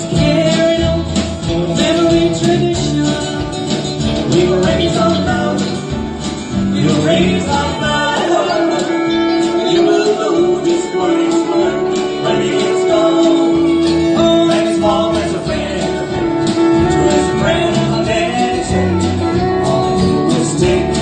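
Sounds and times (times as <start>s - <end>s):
country band music: 0.0s - 21.0s
guitar: 0.0s - 21.0s.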